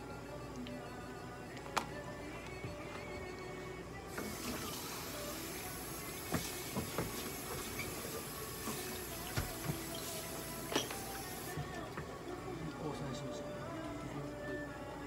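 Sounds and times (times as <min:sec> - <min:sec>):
tap water running into sink: 0:04.1 - 0:11.6.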